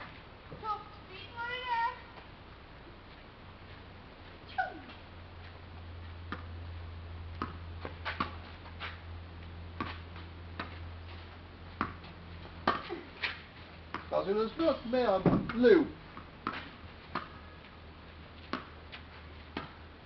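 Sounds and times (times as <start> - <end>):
steady low hum: 0.0 - 20.0
tennis ball strikes and bounces: 6.3 - 6.6, 7.3 - 9.0, 9.8 - 10.8, 11.8 - 14.1, 15.2 - 17.4, 18.4 - 19.8.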